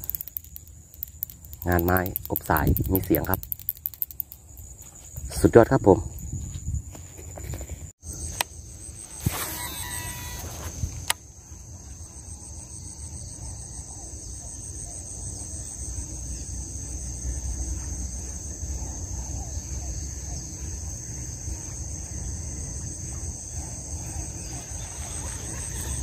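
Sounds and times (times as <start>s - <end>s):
sharp click: 0.0s - 4.8s
insects trilling: 0.0s - 26.0s
wind rumble on microphone: 1.6s - 3.4s, 5.1s - 7.9s.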